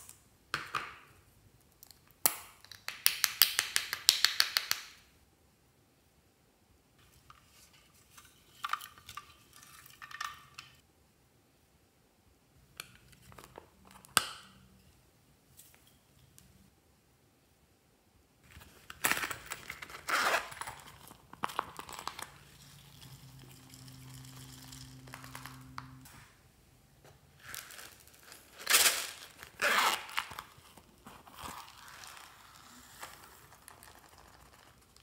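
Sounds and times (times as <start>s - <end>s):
faint low hum: 10.1s - 27.4s
coin purse zipper pulls: 19.0s - 21.1s, 27.4s - 30.6s
rustling and crinkling: 27.0s - 35.0s.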